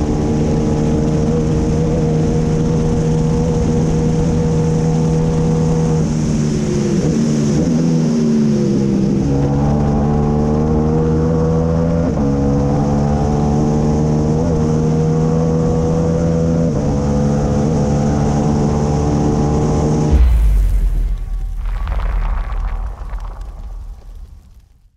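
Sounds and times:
engine running at high revs: 0.0s - 20.4s
rushing wind: 19.9s - 24.8s.

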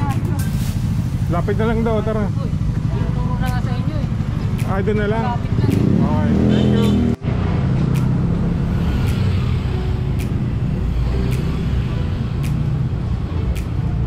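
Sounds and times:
rumble of passing vehicles: 0.0s - 14.0s
faint sharp tick: 10.2s - 10.5s, 11.3s - 11.8s.

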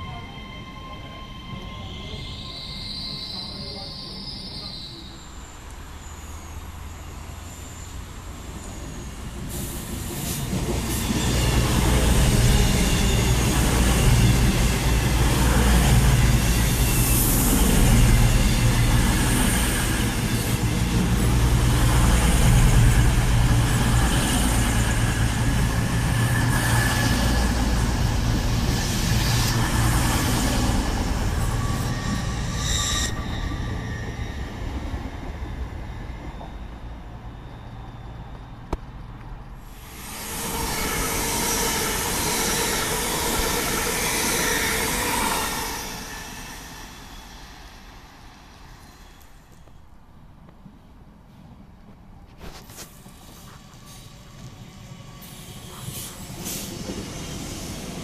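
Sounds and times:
train wheels rumbling on rail: 0.0s - 58.0s.

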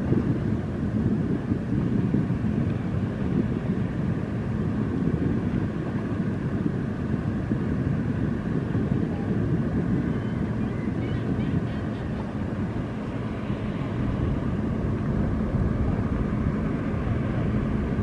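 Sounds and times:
dredger machinery rumble: 7.9s - 18.0s.

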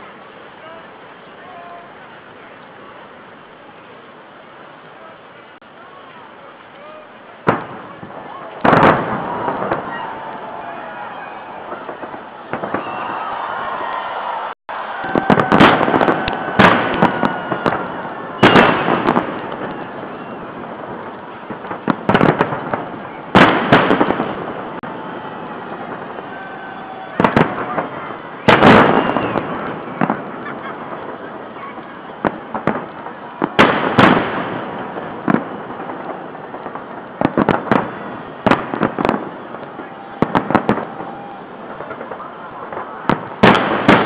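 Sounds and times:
crowd noise: 0.0s - 44.0s
fireworks bursting: 0.0s - 44.0s
loud booms with rolling echo: 7.5s - 14.0s, 14.9s - 31.5s, 32.2s - 44.0s.

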